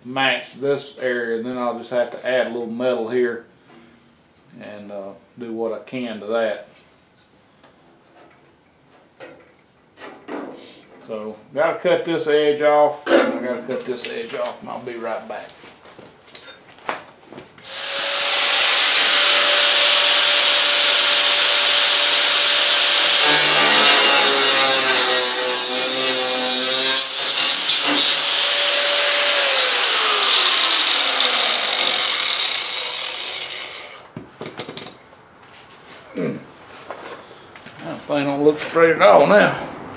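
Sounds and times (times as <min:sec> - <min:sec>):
angle grinder cutting metal: 0:17.6 - 0:34.1.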